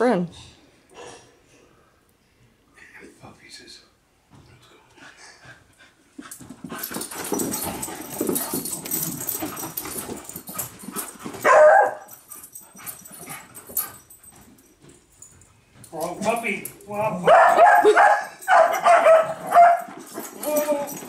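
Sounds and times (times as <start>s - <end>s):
dogs scuffling on rug: 5.4s - 21.0s
dog barking: 11.4s - 12.1s, 17.2s - 19.9s.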